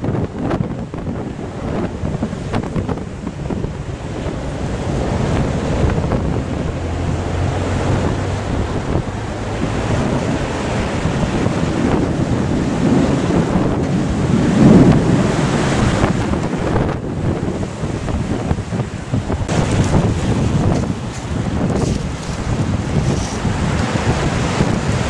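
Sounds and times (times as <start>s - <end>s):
gusty wind buffeting microphone: 0.0s - 25.0s.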